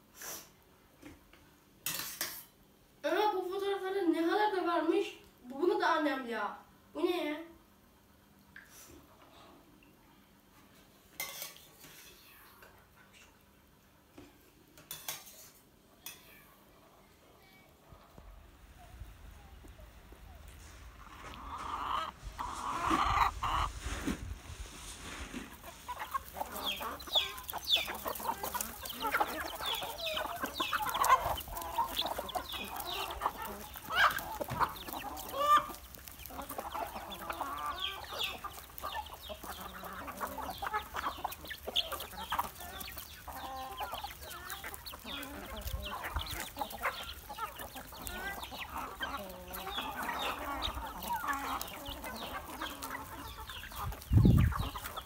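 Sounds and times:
chickens clucking: 0:17.8 - 0:55.0.

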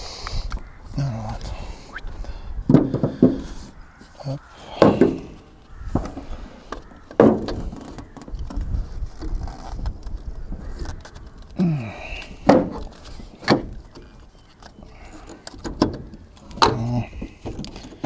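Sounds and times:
metal knocks: 0:04.7 - 0:08.3.

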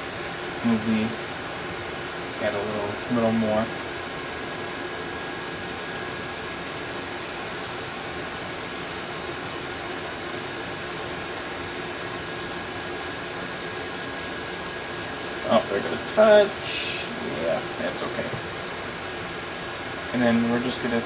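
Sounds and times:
batter sizzling on griddle: 0:00.0 - 0:21.0
steady hum: 0:00.0 - 0:21.0
faint high whine: 0:05.9 - 0:18.6.

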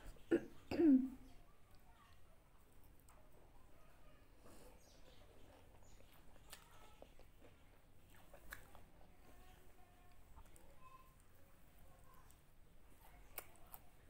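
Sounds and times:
soft mouth noises: 0:04.4 - 0:09.2
chewing food: 0:04.4 - 0:14.0.

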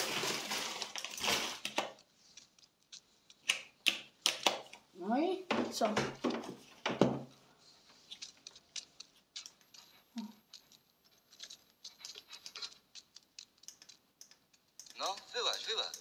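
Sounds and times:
faint light clicks and ticks: 0:07.8 - 0:16.0.

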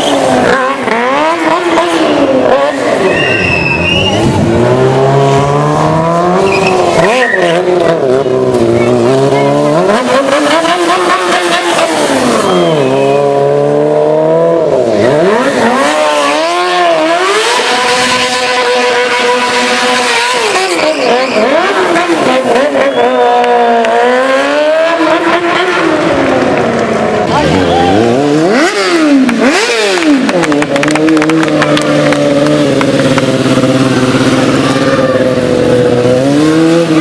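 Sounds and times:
motorcycle engine revving: 0:00.0 - 0:37.0
tyre screeching: 0:01.9 - 0:08.1, 0:15.9 - 0:23.6.

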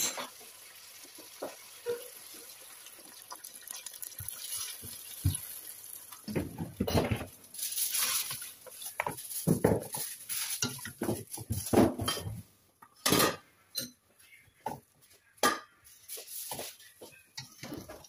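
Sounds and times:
water pouring into pot: 0:00.4 - 0:08.7.

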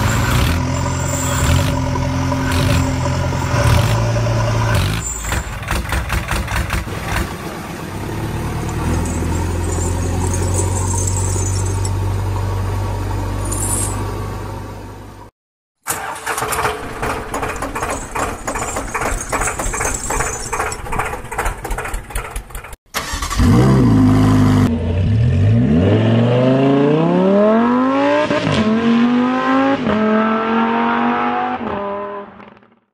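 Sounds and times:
tractor engine chugging: 0:15.9 - 0:23.3
sports car engine revving: 0:23.4 - 0:32.5.

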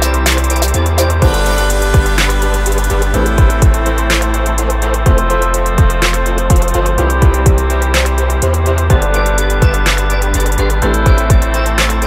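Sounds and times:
fast hi-hat ticks: 0:00.0 - 0:08.6
deep kick drums: 0:00.0 - 0:12.0.

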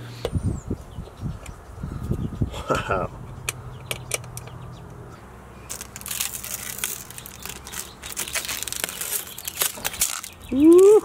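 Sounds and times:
plastic film crinkling: 0:05.7 - 0:11.0.

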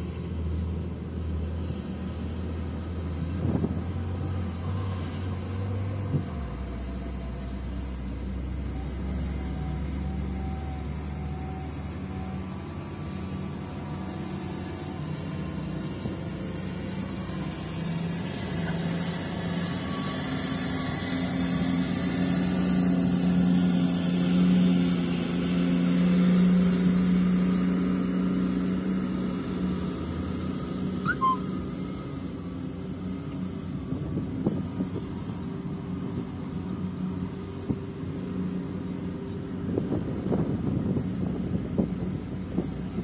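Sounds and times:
excavator diesel engine under load: 0:00.0 - 0:43.0
brief high chirp: 0:31.0 - 0:31.4.

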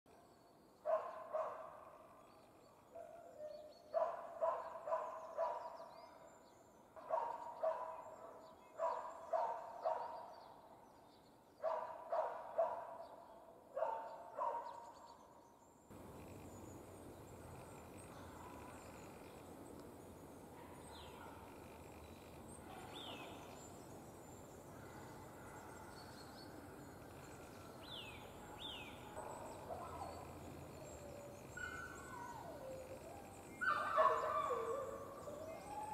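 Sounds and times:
dog barking: 0:00.8 - 0:02.0, 0:03.0 - 0:05.9, 0:07.0 - 0:10.4, 0:11.6 - 0:14.9, 0:20.6 - 0:21.5, 0:28.5 - 0:30.4, 0:33.6 - 0:35.2
outdoor background hiss: 0:14.8 - 0:35.9.

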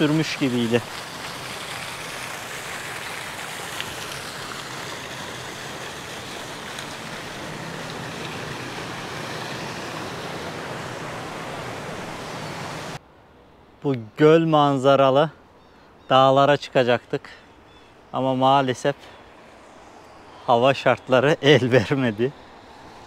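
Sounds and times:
steady outdoor rushing noise: 0:00.0 - 0:13.1, 0:17.7 - 0:23.0.

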